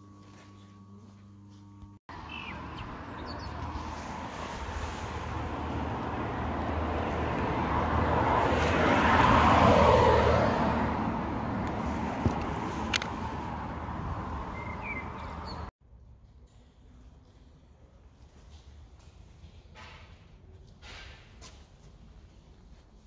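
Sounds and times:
low rumble of traffic: 0:02.0 - 0:23.0
car passing: 0:02.1 - 0:15.7.

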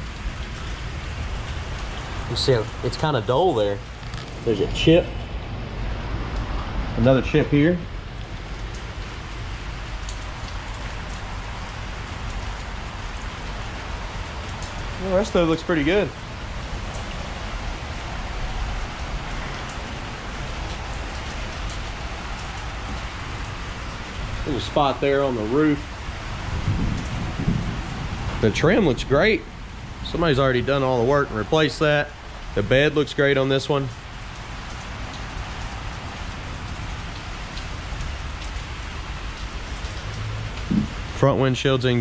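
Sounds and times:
steady rain hiss: 0:00.0 - 0:42.0
faint drip ticks: 0:08.1 - 0:15.1.

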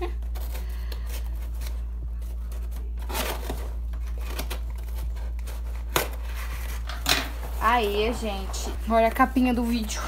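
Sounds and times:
scissors cutting cardboard: 0:00.1 - 0:06.9.

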